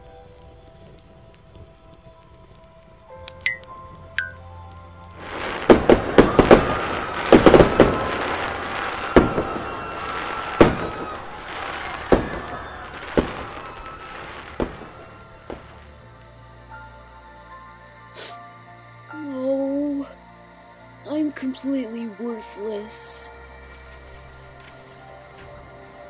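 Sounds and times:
fireworks crackling: 0.0 - 17.0, 21.1 - 26.0
fireworks bangs: 5.2 - 16.0.

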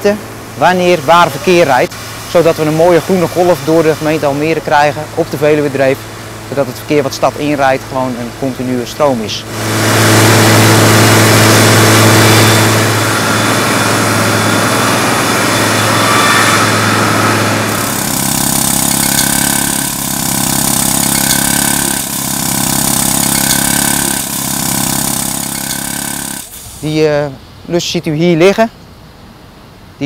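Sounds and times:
engine-driven machine running: 0.0 - 27.1
road saw cutting asphalt: 0.0 - 27.3
high machine tone: 6.5 - 27.1.

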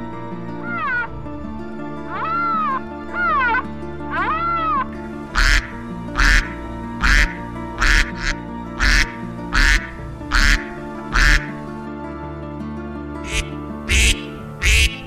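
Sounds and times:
background music: 0.0 - 15.0
duck quacking: 2.1 - 11.7, 13.2 - 15.0.

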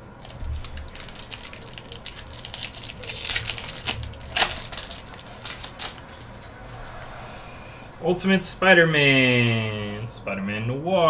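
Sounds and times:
foil wrapper crinkling and tearing: 0.1 - 6.2.

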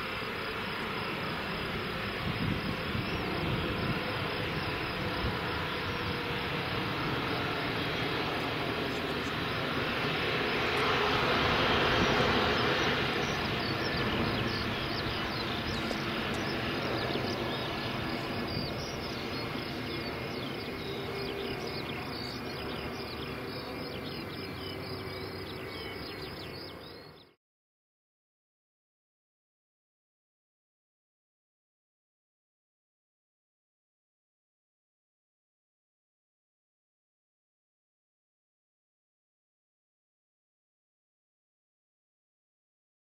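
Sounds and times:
jet engines rushing: 0.0 - 27.2.

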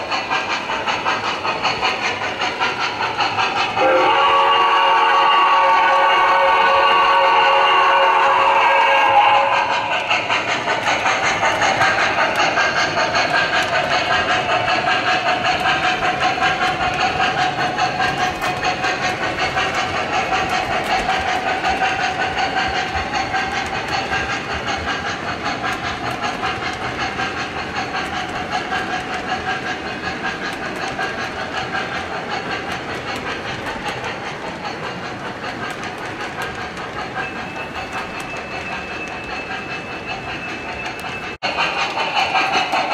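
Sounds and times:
wheels clicking over rail joints: 0.0 - 4.2, 8.0 - 42.9
model locomotive chuffing and hissing: 0.0 - 42.9.

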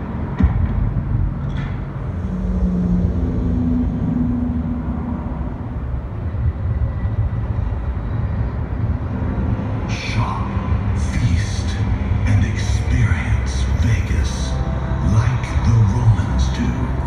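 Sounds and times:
low hum: 0.0 - 17.0
street traffic rumble: 0.0 - 17.0.

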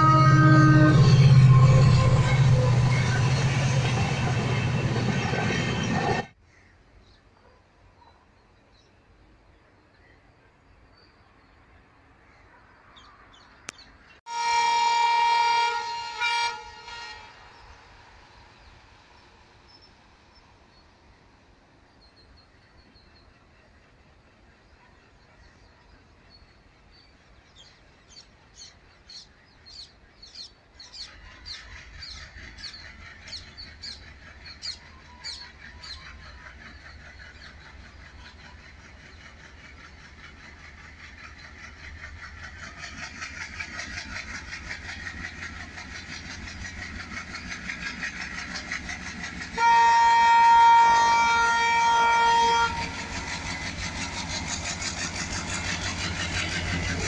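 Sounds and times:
loud train horn blast: 0.0 - 6.3, 14.3 - 17.8, 49.5 - 54.5
diesel locomotive rumble: 0.0 - 6.4, 14.4 - 57.0.

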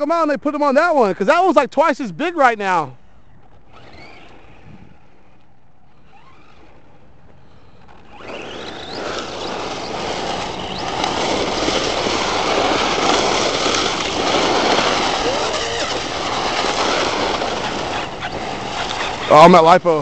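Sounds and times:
rc truck motor whine: 3.4 - 5.0, 5.8 - 6.9, 7.6 - 19.3.

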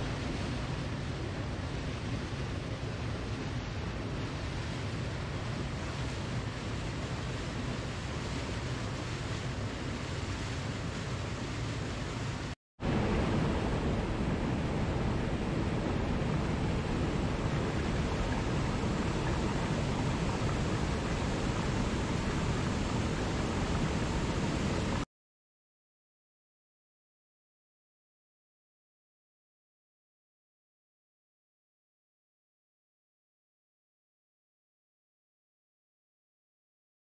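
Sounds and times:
water rushing over rocks: 0.0 - 25.1.

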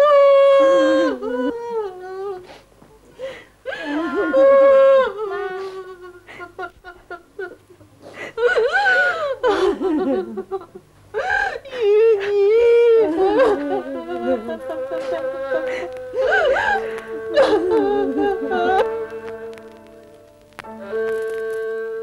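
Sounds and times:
person wailing: 0.0 - 2.4, 3.7 - 6.7, 11.2 - 19.1
person sobbing: 0.0 - 19.1.

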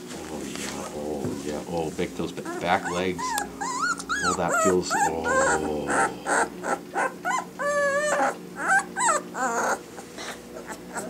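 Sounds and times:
puppy whimpering and whining: 2.2 - 11.0.

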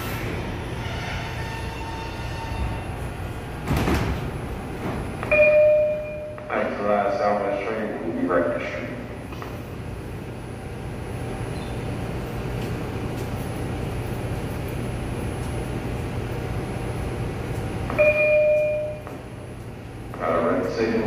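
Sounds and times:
subway train humming: 0.0 - 21.0
train door chime: 5.2 - 6.6, 17.9 - 19.3.

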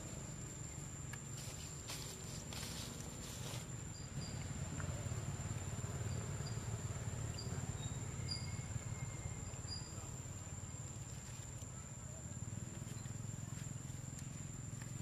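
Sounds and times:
insects droning: 0.0 - 15.0
faint high chirps: 7.3 - 10.2.

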